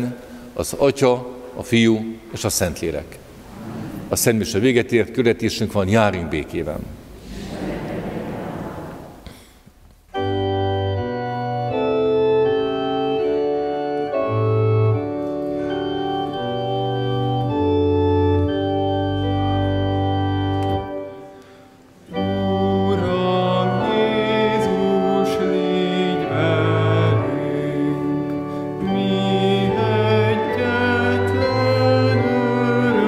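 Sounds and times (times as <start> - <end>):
organ playing chords: 10.1 - 33.0.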